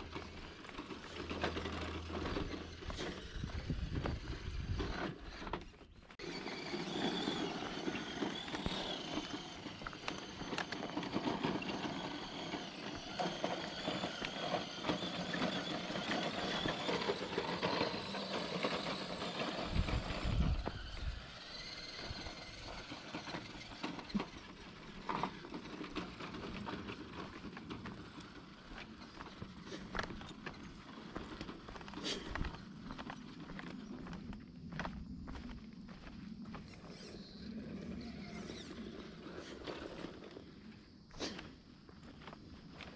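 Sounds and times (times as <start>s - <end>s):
electric motor whining: 0.0s - 33.0s, 36.7s - 40.5s
tyres crunching on stones: 0.0s - 42.9s.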